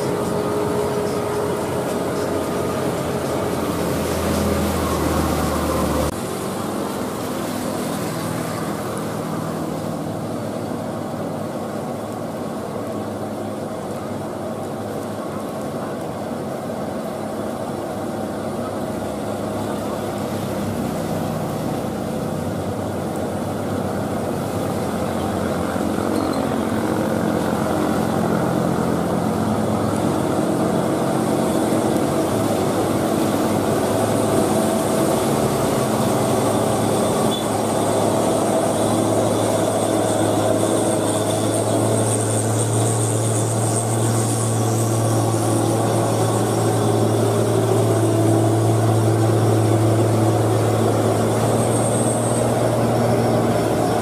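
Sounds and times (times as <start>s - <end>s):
truck diesel engine pulling uphill: 0.0s - 14.9s, 16.9s - 54.0s.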